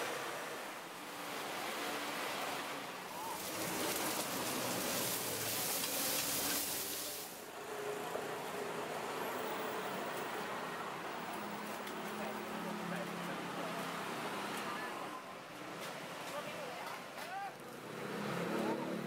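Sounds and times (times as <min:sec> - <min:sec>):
street noise: 0:00.0 - 0:19.0
faint voices: 0:03.1 - 0:07.4
pancakes sizzling in oil: 0:03.4 - 0:07.4.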